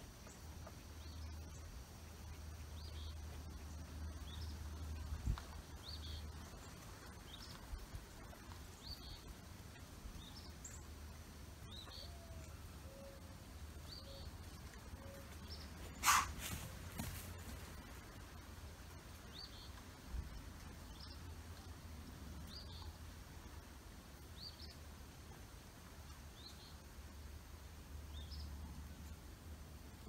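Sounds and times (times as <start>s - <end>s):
bird chirping: 11.6s - 17.4s.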